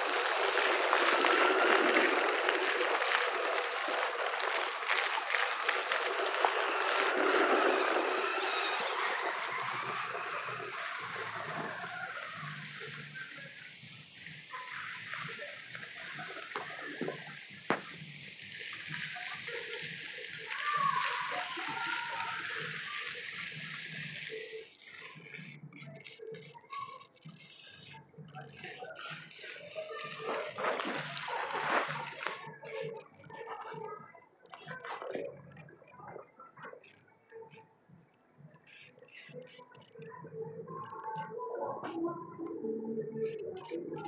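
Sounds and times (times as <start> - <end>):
splashing spraying water: 0.0 - 34.0.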